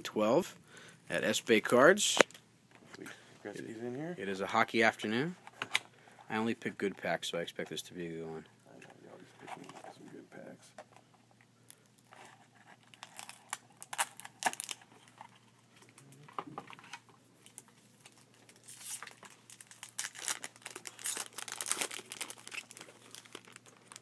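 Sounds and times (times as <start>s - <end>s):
foil wrapper crinkling: 12.8s - 15.4s, 16.8s - 24.0s.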